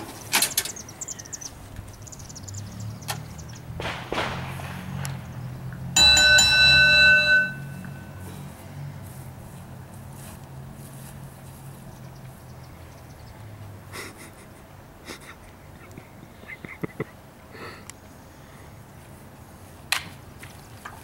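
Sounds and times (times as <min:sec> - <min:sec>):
metal bell ringing: 0:06.0 - 0:08.4.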